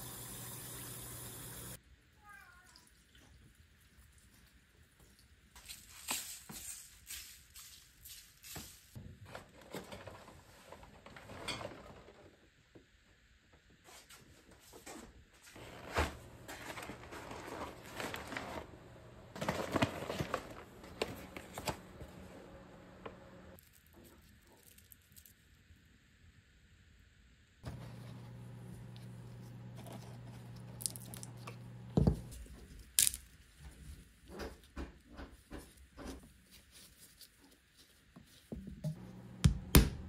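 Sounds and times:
low steady hum: 0:25.6 - 0:34.2.

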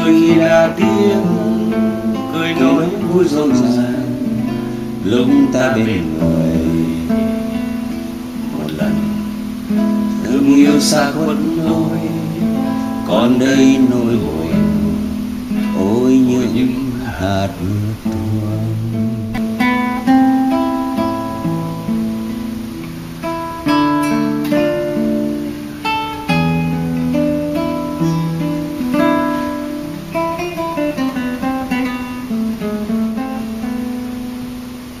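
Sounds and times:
acoustic guitar playing: 0:00.0 - 0:35.0.

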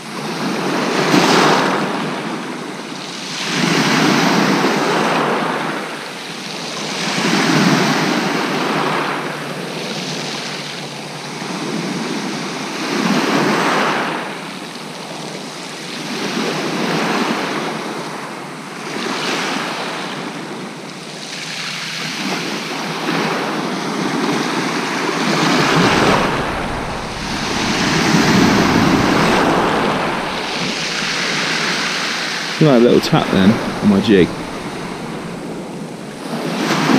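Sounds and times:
waves breaking on shingle beach: 0:24.0 - 0:36.9
wind buffeting microphone: 0:24.8 - 0:36.9.

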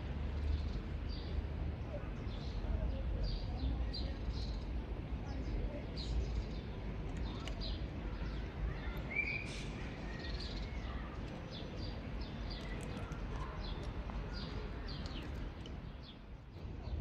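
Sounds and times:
low outdoor rumble: 0:00.0 - 0:17.0
small birds chirping: 0:00.3 - 0:17.0.

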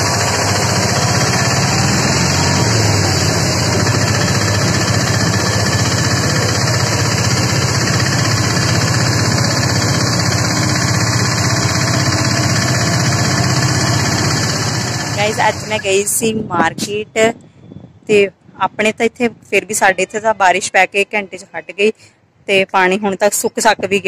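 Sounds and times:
vehicles driving through water: 0:00.0 - 0:15.9.

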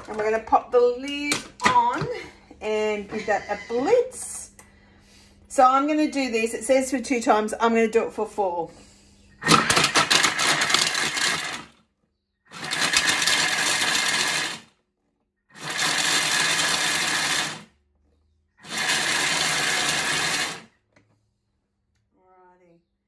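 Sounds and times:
food processor blades chopping: 0:09.4 - 0:11.8, 0:12.5 - 0:14.8, 0:15.5 - 0:17.8, 0:18.6 - 0:20.8.

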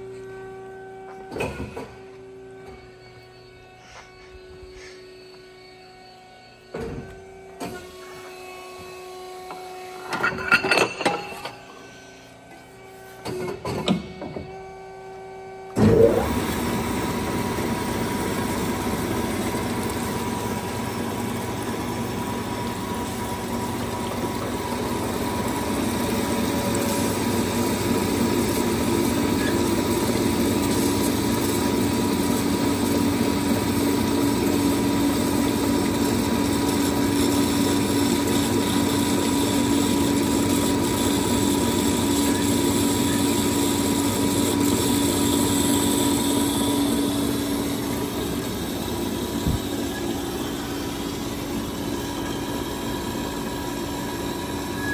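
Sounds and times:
band saw running: 0:15.8 - 0:54.9.

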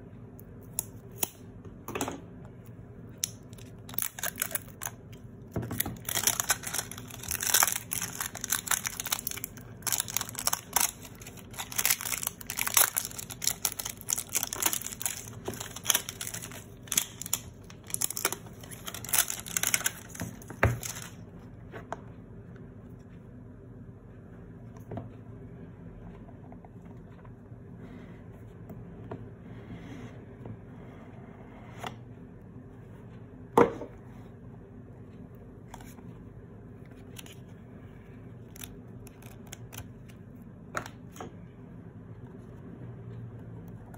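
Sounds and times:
plastic wrap crinkling and tearing: 0:03.6 - 0:21.2.

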